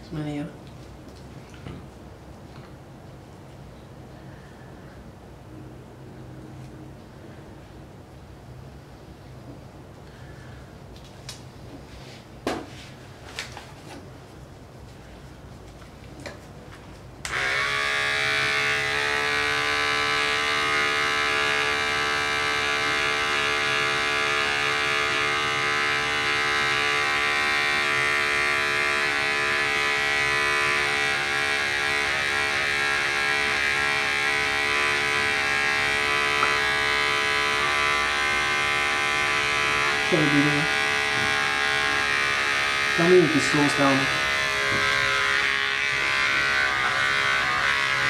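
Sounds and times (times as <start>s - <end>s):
electric hair clippers humming: 17.2s - 48.0s.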